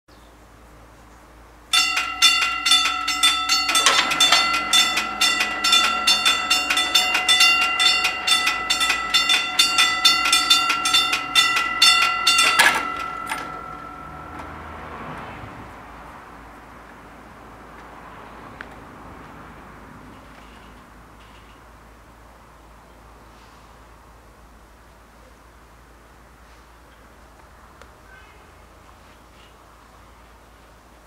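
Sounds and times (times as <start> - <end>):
level crossing bells ringing: 1.7 - 16.7.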